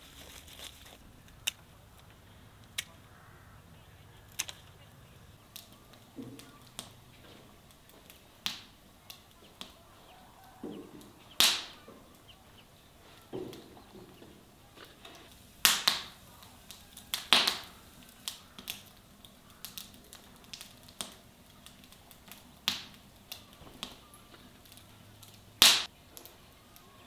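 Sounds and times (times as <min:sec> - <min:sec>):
clay pots knocking on wood: 0:10.6 - 0:11.2.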